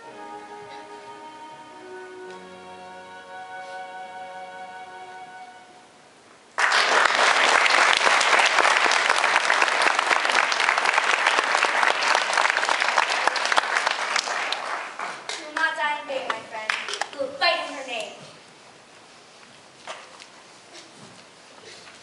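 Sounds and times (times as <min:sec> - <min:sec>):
held musical chord: 0:00.0 - 0:06.0
audience applause: 0:06.6 - 0:15.8.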